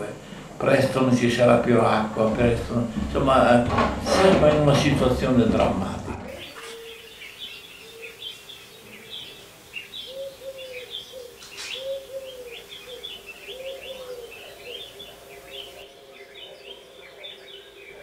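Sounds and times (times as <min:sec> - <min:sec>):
faint steady hum: 0:00.0 - 0:18.0
small birds chirping: 0:06.3 - 0:18.0
pigeon cooing: 0:07.8 - 0:18.0.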